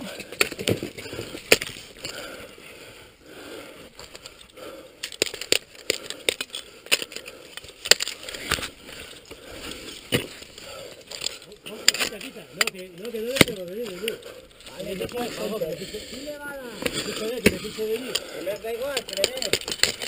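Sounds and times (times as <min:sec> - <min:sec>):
ice axes striking ice: 0:00.2 - 0:02.2, 0:05.0 - 0:08.8, 0:09.8 - 0:14.1, 0:16.7 - 0:20.0.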